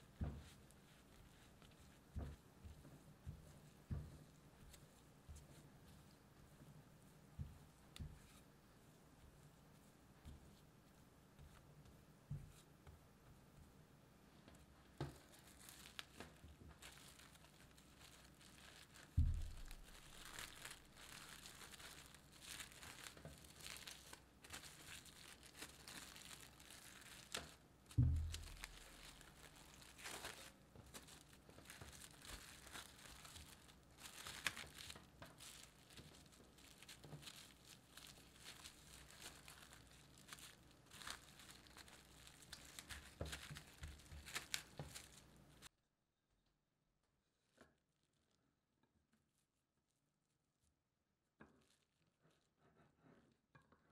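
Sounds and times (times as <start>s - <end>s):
plastic wrap crinkling: 14.8s - 45.7s
dull thumps: 18.7s - 20.6s, 27.9s - 30.0s.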